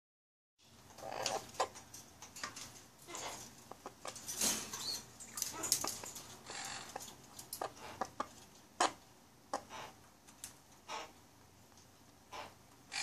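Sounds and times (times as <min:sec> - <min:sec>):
beak scraping: 0:00.9 - 0:01.8, 0:02.4 - 0:10.0, 0:12.3 - 0:13.0.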